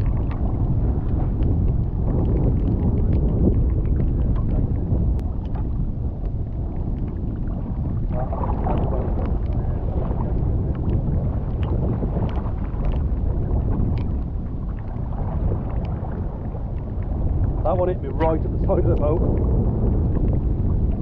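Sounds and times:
choppy sea: 0.0 - 21.0
wind on microphone: 0.0 - 21.0
light ticks: 1.3 - 7.2, 8.8 - 9.6, 10.3 - 13.1, 13.8 - 14.2.

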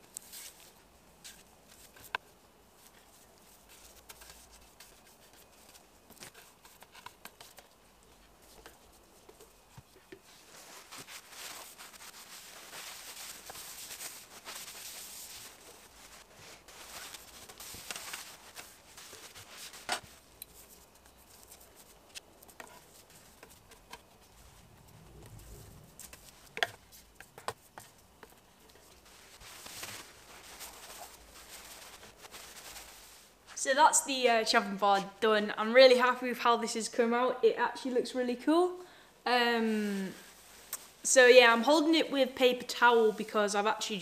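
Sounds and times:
paper crinkling: 0.0 - 33.5
paper rubbing on wood: 10.2 - 24.5.

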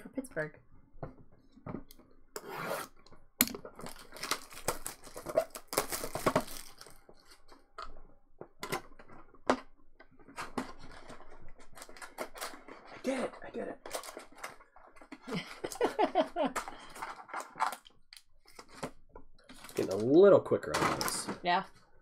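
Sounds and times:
cardboard tearing: 3.9 - 6.9.

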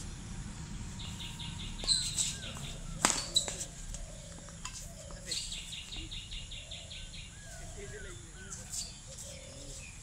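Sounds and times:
birds chirping: 0.0 - 10.0
badminton racket hitting shuttlecock: 3.0 - 3.6.

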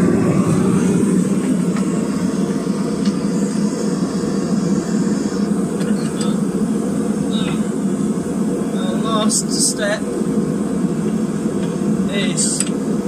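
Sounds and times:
gas forge burner rushing: 0.0 - 13.0.

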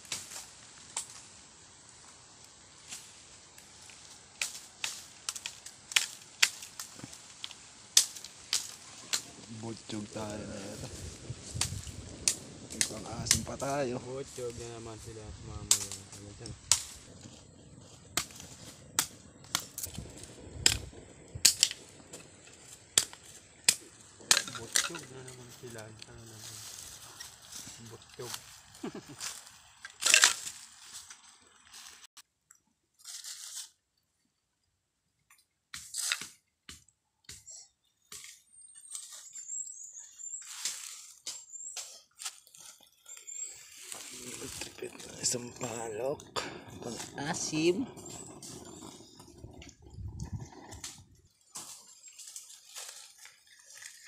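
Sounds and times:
sharp pops of fire: 0.0 - 2.1, 2.7 - 9.5, 10.1 - 13.8, 15.3 - 25.1, 44.2 - 51.8
dry leaves crunching and rustling: 0.0 - 13.0, 21.7 - 32.1, 40.2 - 49.2, 50.8 - 54.0
wood fire crackling: 0.0 - 32.2, 35.3 - 54.0.

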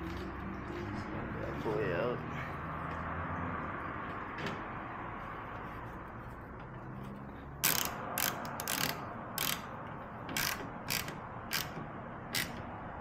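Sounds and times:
hand ratchet pawl clicking: 7.6 - 12.7.

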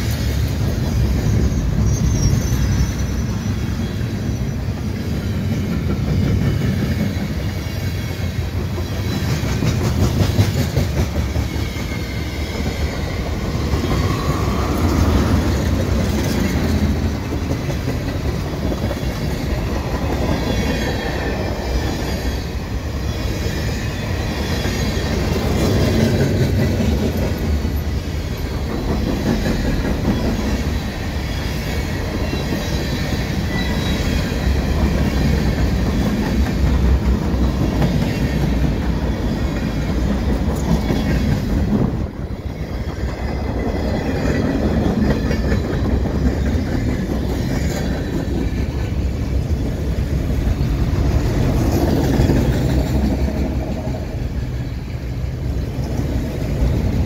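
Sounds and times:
train wheels rumbling on rails: 0.0 - 57.0
high wheel squeal: 0.1 - 5.6, 11.2 - 17.3, 19.0 - 28.7, 29.5 - 36.2.

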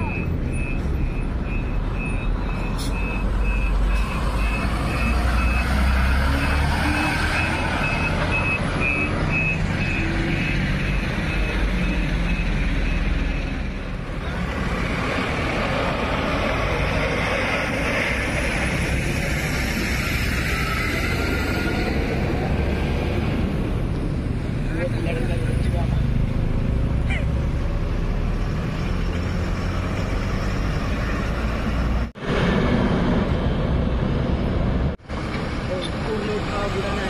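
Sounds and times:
approaching bus and road noise: 0.0 - 37.0
diesel bus engine rumbling: 0.0 - 37.0.

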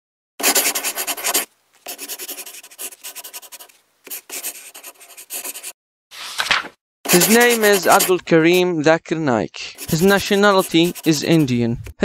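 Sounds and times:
pen scratching on paper: 0.4 - 5.8, 7.1 - 8.6, 9.8 - 11.6.

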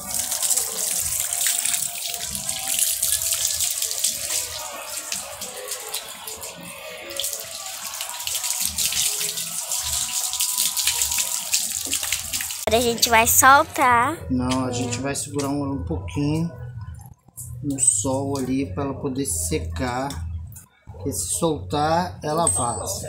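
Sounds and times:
water pouring and splashing: 0.0 - 13.4.

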